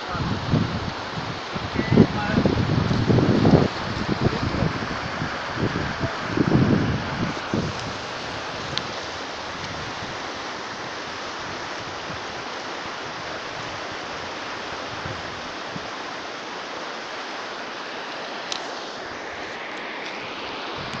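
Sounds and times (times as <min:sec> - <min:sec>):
river rushing over stones: 0:00.0 - 0:21.0.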